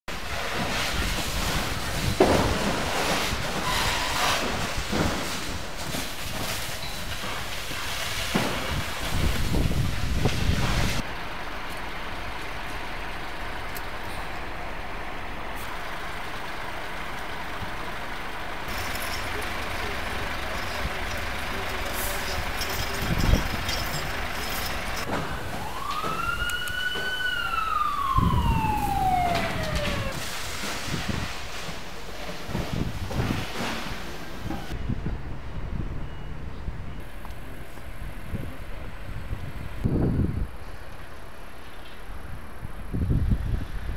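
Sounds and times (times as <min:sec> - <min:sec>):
fire burning with low rumble: 0:00.1 - 0:43.9
wind buffeting microphone: 0:08.4 - 0:11.0, 0:22.4 - 0:24.0, 0:27.5 - 0:31.4, 0:32.5 - 0:33.6, 0:34.4 - 0:40.8, 0:42.2 - 0:43.9
emergency siren wailing: 0:25.3 - 0:30.2.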